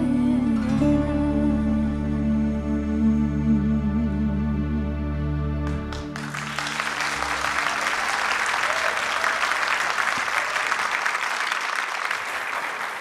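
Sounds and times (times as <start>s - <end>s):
held music chord: 0.0s - 7.7s
audience applause: 5.9s - 13.0s.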